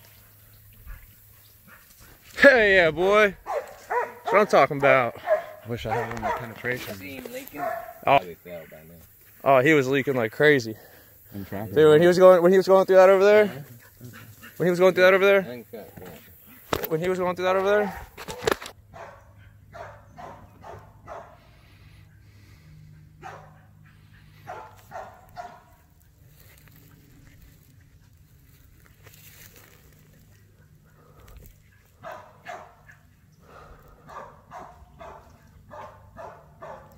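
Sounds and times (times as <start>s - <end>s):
faint dog barking: 3.4s - 8.7s, 17.6s - 21.9s, 22.8s - 27.4s, 30.3s - 36.9s.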